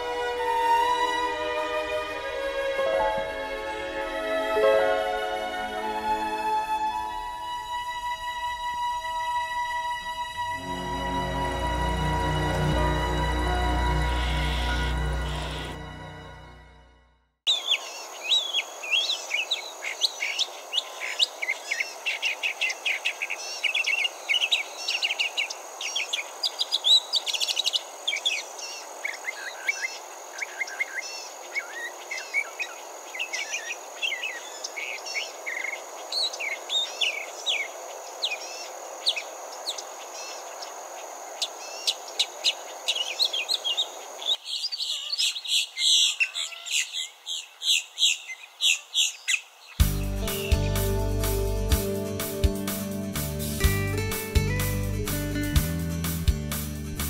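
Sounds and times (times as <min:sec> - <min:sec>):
mockingbird singing: 0:41.4 - 0:50.9.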